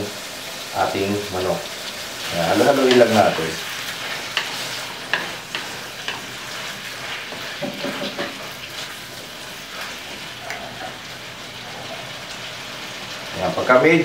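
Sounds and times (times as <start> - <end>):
chicken sizzling in a wok: 0.0 - 14.0
wooden spoon scraping pan: 2.5 - 12.1.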